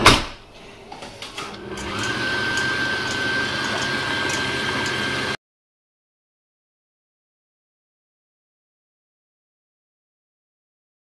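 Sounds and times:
stand mixer motor whining: 0:01.3 - 0:05.4.

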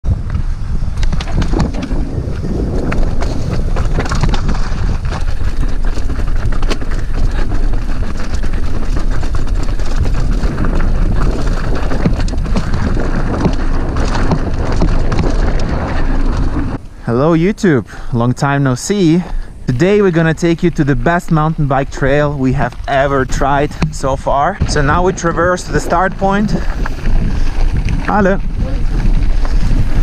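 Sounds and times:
wind rush on microphone: 0:00.0 - 0:18.1, 0:19.0 - 0:30.0
bike rattling over rocks: 0:00.1 - 0:17.0, 0:19.0 - 0:30.0.

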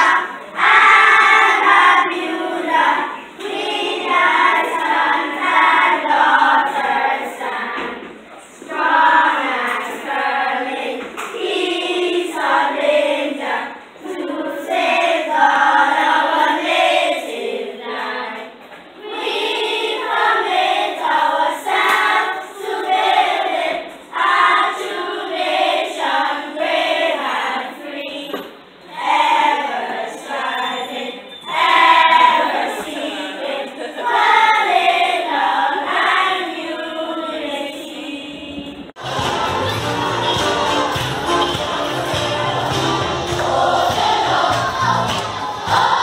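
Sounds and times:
children's choir singing: 0:00.0 - 0:46.0.

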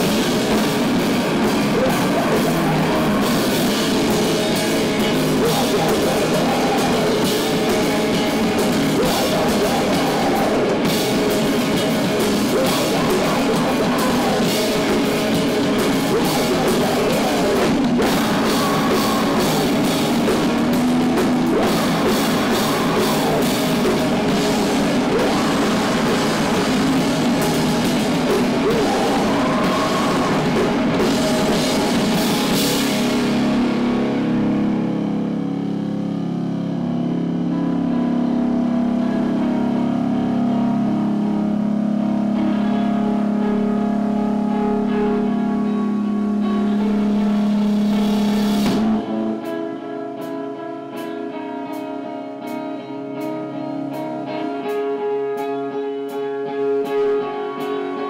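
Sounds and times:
drum kit with cymbals: 0:00.0 - 0:35.0, 0:46.4 - 0:49.2
electric guitars: 0:00.0 - 0:58.0.

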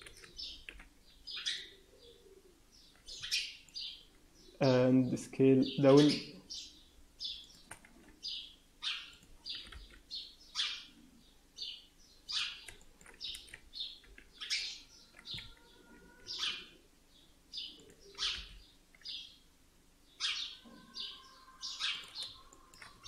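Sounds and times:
bird chirping: 0:00.0 - 0:23.0.

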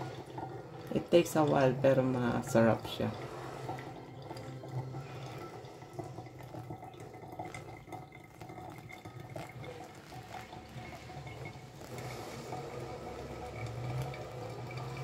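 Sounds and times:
faint dripping: 0:00.0 - 0:15.0
water trickling onto coffee grounds: 0:00.0 - 0:15.0.

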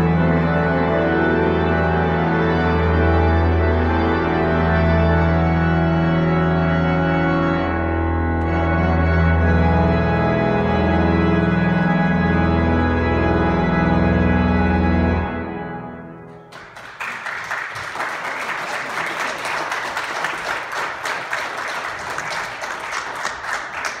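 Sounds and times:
pipe organ chord: 0:00.0 - 0:16.9
audience applause: 0:16.5 - 0:24.0.

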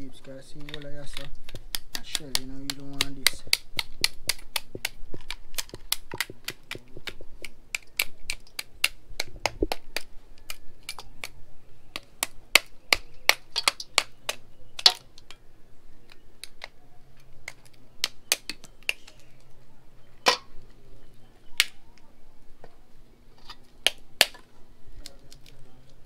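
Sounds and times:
knife tapping and scraping: 0:00.1 - 0:11.3
crab shell cracking: 0:00.5 - 0:15.4, 0:16.0 - 0:19.4.

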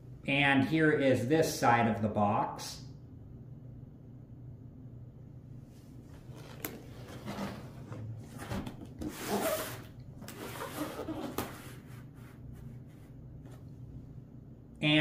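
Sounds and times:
cardboard scraping and rubbing: 0:06.2 - 0:13.6.

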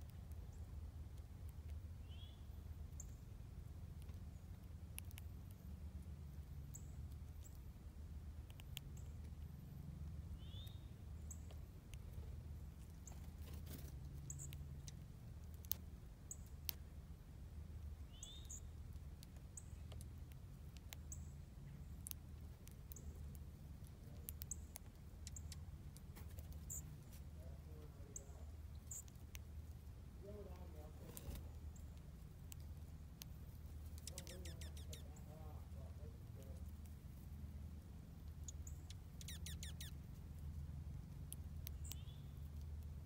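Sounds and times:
faint sharp clicks: 0:04.0 - 0:05.6, 0:12.8 - 0:16.8, 0:18.4 - 0:21.2
songbird chip calls: 0:10.4 - 0:11.5, 0:18.1 - 0:18.7, 0:34.0 - 0:35.4, 0:38.4 - 0:40.0, 0:41.7 - 0:42.4
bird downward chirps: 0:38.7 - 0:40.0.

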